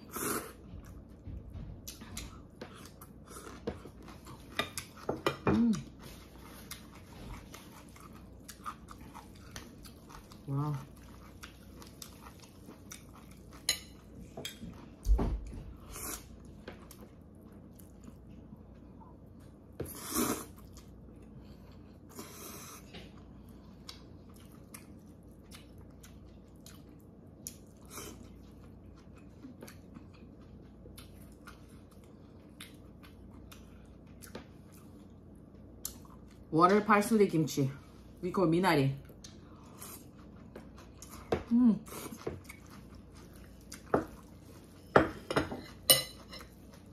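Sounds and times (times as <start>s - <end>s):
chewing: 5.7s - 15.0s, 20.4s - 36.5s, 39.0s - 44.9s.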